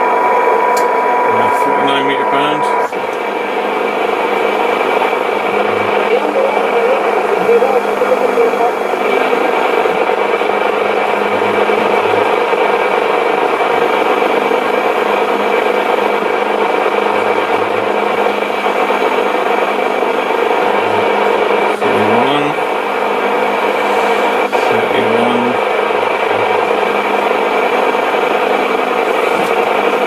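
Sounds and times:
short rising tone: 0.0 - 6.0
printer whirring: 0.0 - 30.0
radio static with crackling: 0.0 - 30.0.

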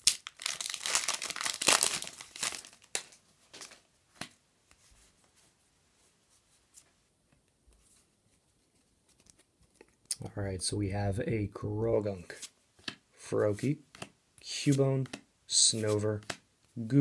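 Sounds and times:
foil wrapper tearing and crinkling: 0.0 - 3.2
faint clicks and rustles of cards: 0.4 - 10.3, 12.2 - 17.0.

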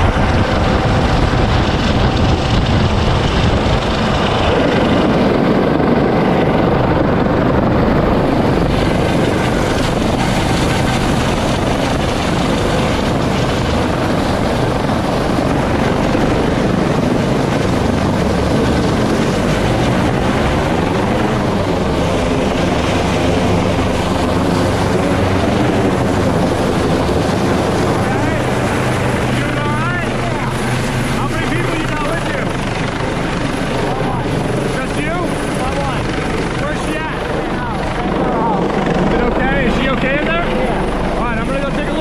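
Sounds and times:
helicopter hovering overhead: 0.0 - 42.0.

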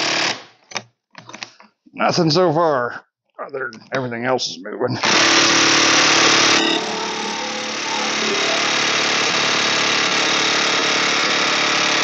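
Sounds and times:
impact wrench hammering: 0.0 - 0.4, 5.0 - 12.0.

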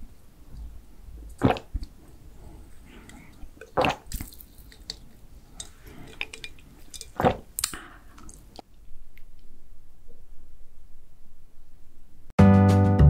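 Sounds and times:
sipping through a straw: 1.4 - 8.6
small drips and clicks: 2.8 - 9.5.

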